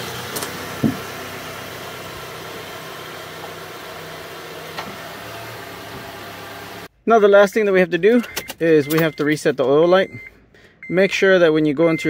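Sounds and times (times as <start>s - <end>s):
car engine idling: 0.0s - 6.9s.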